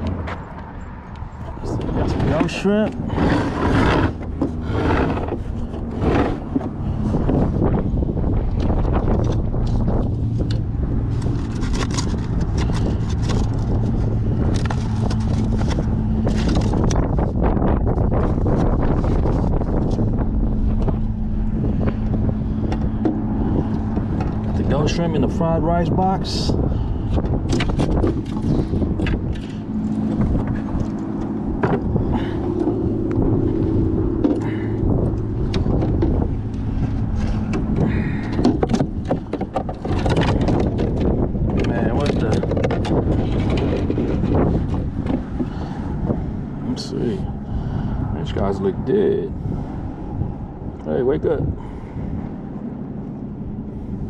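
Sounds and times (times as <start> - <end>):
handling clicks and scrapes: 0.0 - 7.7, 8.5 - 25.1, 27.1 - 46.1
low hum: 0.0 - 54.0
low motor drone: 0.0 - 54.0
wind buffeting microphone: 0.0 - 54.0
handling clicks and knocks: 35.4 - 45.6.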